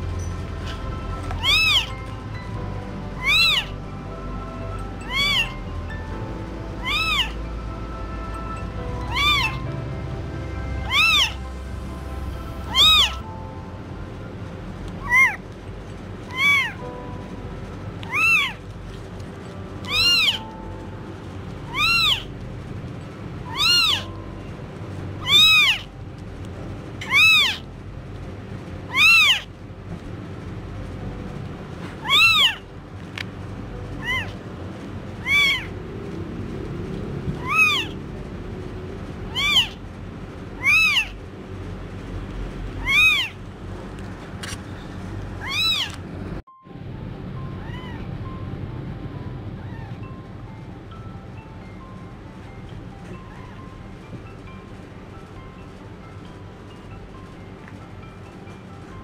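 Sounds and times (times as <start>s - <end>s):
kitten mewing: 1.4s - 1.9s, 3.2s - 3.8s, 5.0s - 5.6s, 6.8s - 7.4s, 9.1s - 9.6s, 10.8s - 11.4s, 12.7s - 13.2s, 15.0s - 15.4s, 16.3s - 16.8s, 18.1s - 18.6s, 19.8s - 20.5s, 21.7s - 22.3s, 23.5s - 24.1s, 25.2s - 25.9s, 27.0s - 27.6s, 28.9s - 29.5s, 32.0s - 32.6s, 34.0s - 34.4s, 35.2s - 35.8s, 37.4s - 38.0s, 39.3s - 39.8s, 40.6s - 41.2s, 42.8s - 43.4s, 45.4s - 46.0s, 47.6s - 48.0s.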